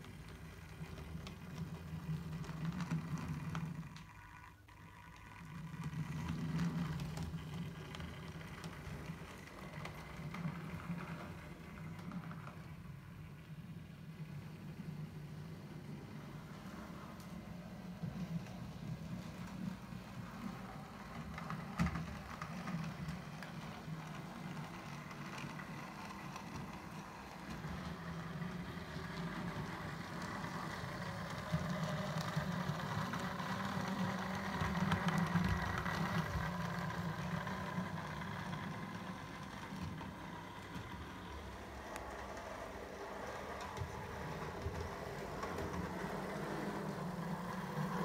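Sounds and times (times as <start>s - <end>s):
model train humming: 0.0s - 48.0s.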